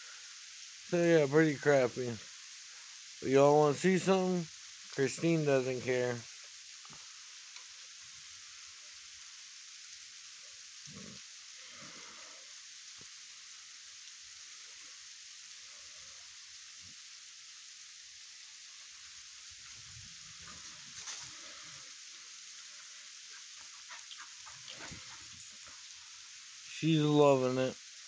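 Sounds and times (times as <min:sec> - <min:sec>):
sleet falling hiss: 0:00.0 - 0:07.6, 0:19.6 - 0:23.8, 0:24.6 - 0:27.8.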